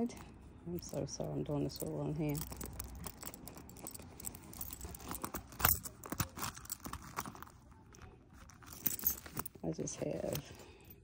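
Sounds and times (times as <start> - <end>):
metal key rings clinking: 0.0 - 11.0.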